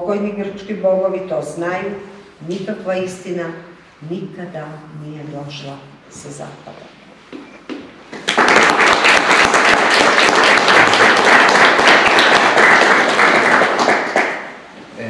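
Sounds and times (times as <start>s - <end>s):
audience applauding: 8.1s - 14.6s.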